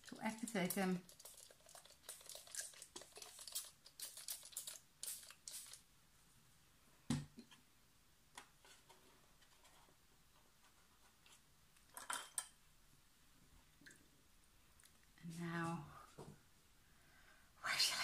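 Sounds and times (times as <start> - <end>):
spray bottle misting: 0.5 - 5.8.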